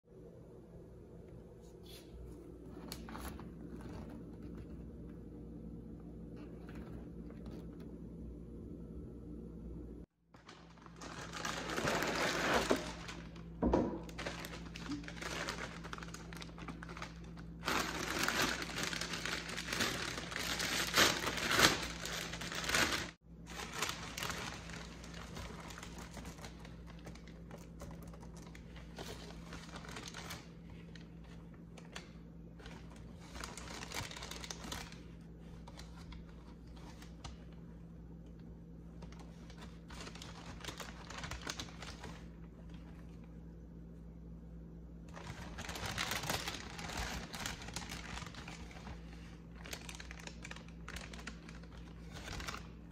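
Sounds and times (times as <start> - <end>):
hands digging through cereal: 10.4 - 13.5, 14.1 - 31.2
plastic bag crinkling: 10.4 - 37.7, 38.7 - 43.3, 45.0 - 52.9.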